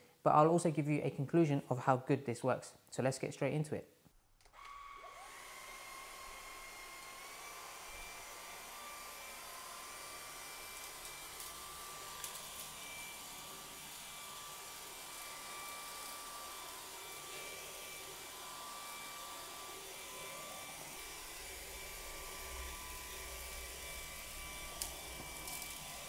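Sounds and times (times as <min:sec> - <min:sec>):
vacuum motor whine: 0:04.5 - 0:26.0
floor brush hissing on hard floor: 0:20.3 - 0:26.0.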